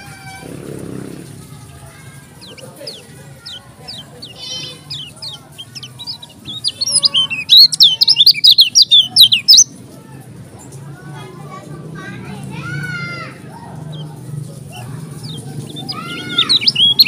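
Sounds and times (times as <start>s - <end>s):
small bird singing sharp chirps: 2.3s - 9.7s, 13.9s - 17.0s.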